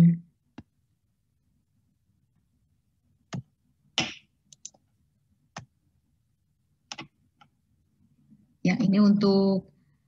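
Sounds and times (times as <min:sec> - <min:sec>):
computer mouse clicking: 0:03.3 - 0:04.8, 0:05.5 - 0:05.7, 0:06.9 - 0:07.6.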